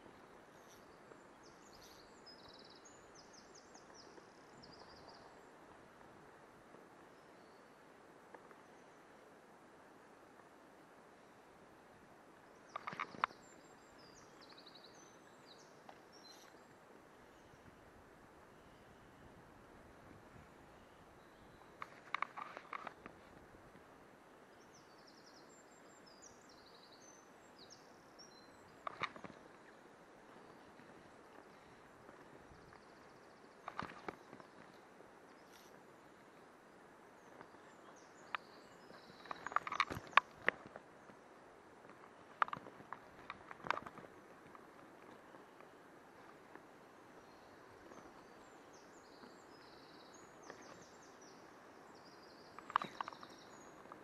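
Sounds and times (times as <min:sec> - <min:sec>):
steady low hiss: 0:00.0 - 0:54.0
small bird chirping: 0:00.1 - 0:05.4, 0:12.6 - 0:16.7, 0:37.2 - 0:40.6, 0:47.2 - 0:54.0
fishing rod clicks and knocks: 0:12.7 - 0:13.3, 0:21.8 - 0:23.2, 0:28.8 - 0:29.4, 0:39.2 - 0:40.8, 0:42.4 - 0:44.6.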